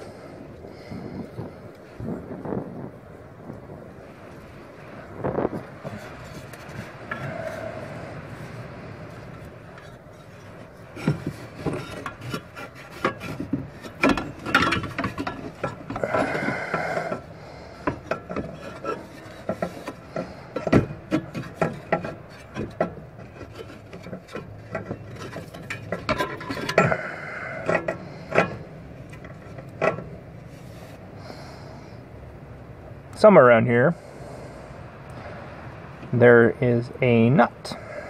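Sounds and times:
metal parts scraping and clinking: 9.8s - 31.0s.

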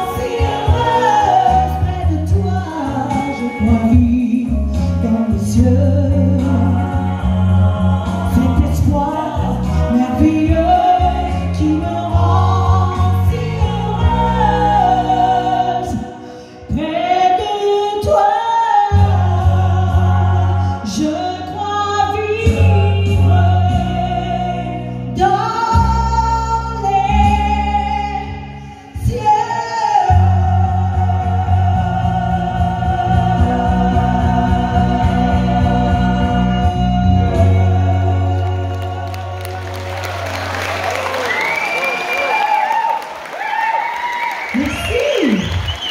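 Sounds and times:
amplified music with bass line: 0.0s - 17.1s, 30.0s - 40.6s
woman singing into microphone: 0.0s - 39.6s.

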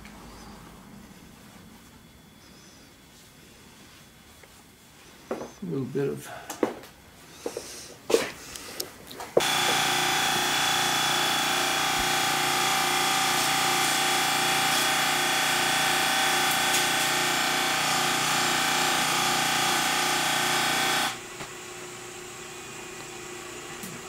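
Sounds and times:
bench buffer polishing shaft: 9.4s - 21.2s.

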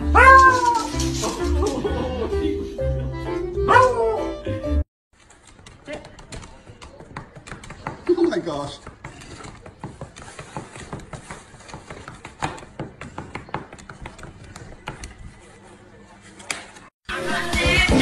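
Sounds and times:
paper being handled: 0.2s - 1.9s, 5.2s - 16.9s.

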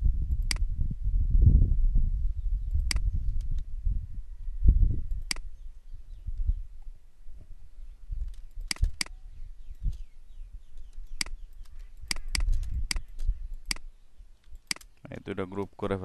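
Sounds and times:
computer mouse clicking: 10.8s - 14.9s.

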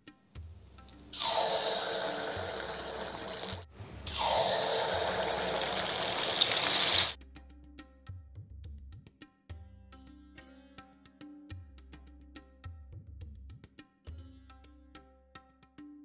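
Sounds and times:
batter sizzling in hot oil: 1.1s - 7.2s.

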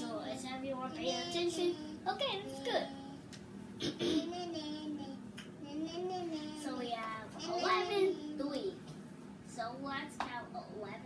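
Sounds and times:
child's wordless wavering voice: 0.0s - 3.2s, 4.1s - 8.8s.

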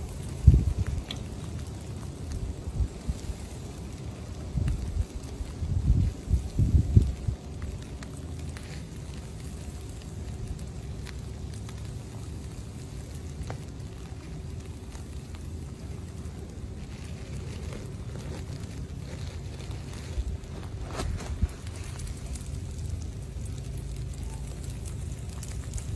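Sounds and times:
faint crackling rustle: 0.0s - 25.9s
wind rumble on microphone: 0.0s - 25.9s
small clicks: 1.0s - 1.3s.

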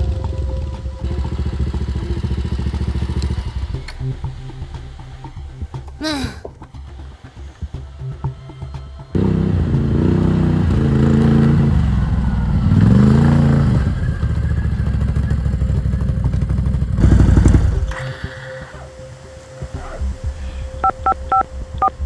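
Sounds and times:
quad bike engine revving and idling: 0.0s - 5.5s, 9.1s - 18.0s.

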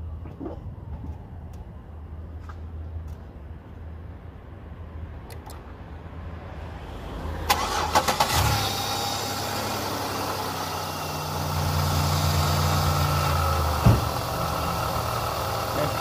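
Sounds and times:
car engine idling: 7.5s - 16.0s.

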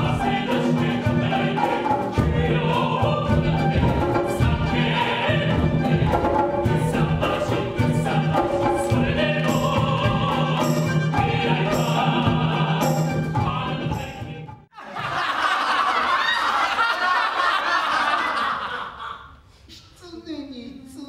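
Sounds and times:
traditional instrument ensemble: 0.0s - 15.5s
chorus singing: 0.0s - 19.0s
crowd laughing loudly: 14.7s - 19.4s.

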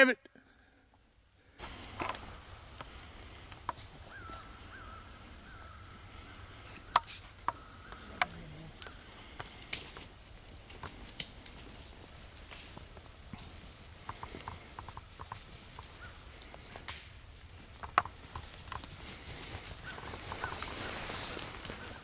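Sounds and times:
twigs snapping underfoot: 6.9s - 22.0s.

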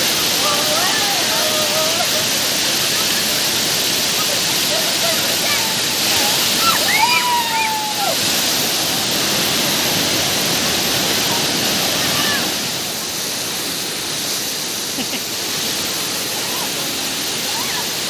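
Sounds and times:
waterfall rushing: 0.0s - 18.0s
person calling out: 0.4s - 2.4s.

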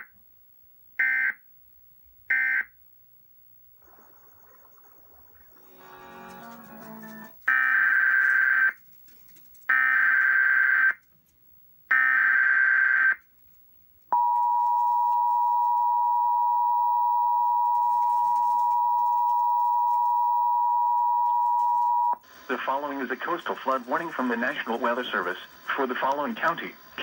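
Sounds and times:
steady attention tone: 14.1s - 27.0s.

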